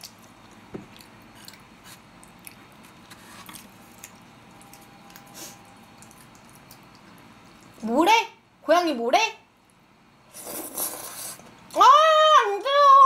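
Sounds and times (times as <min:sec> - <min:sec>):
chewing mouth clicks and smacks: 0:00.0 - 0:05.3, 0:05.9 - 0:07.8.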